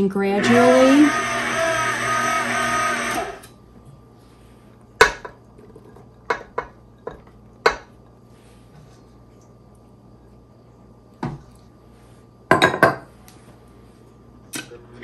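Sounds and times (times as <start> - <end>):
stand mixer running: 0.2 - 3.5.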